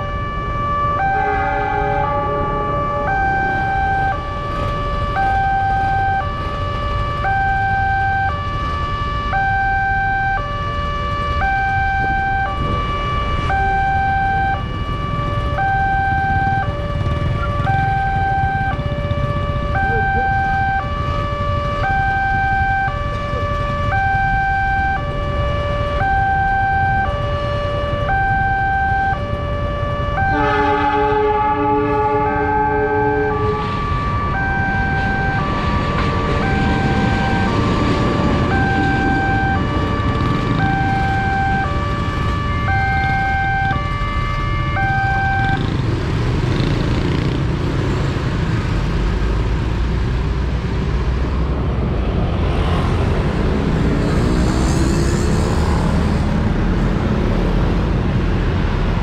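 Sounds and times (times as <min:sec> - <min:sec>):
level crossing two-tone alarm: 0:00.0 - 0:30.8, 0:32.3 - 0:45.9.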